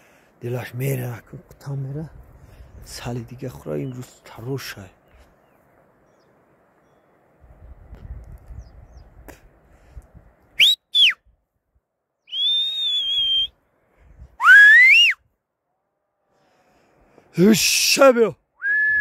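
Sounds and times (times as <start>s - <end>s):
herder whistling: 10.6s - 11.2s, 12.2s - 13.6s, 14.4s - 15.2s, 18.6s - 19.0s.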